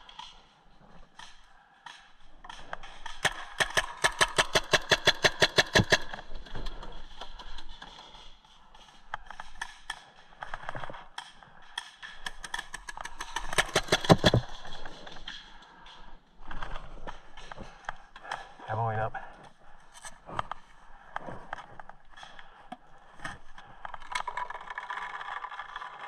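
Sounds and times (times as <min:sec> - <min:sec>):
paintball markers firing: 0:01.2 - 0:07.8, 0:09.2 - 0:15.4.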